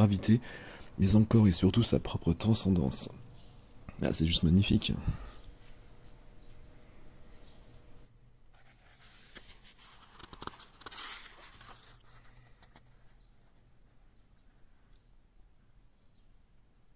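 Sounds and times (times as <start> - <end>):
book page turning: 8.6 - 13.6.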